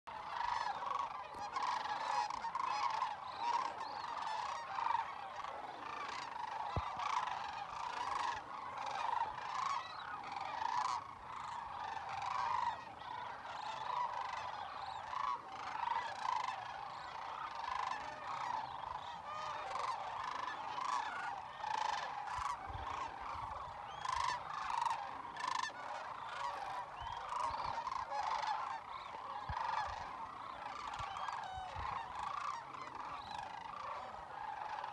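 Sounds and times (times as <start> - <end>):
cranes calling: 0.1 - 34.9.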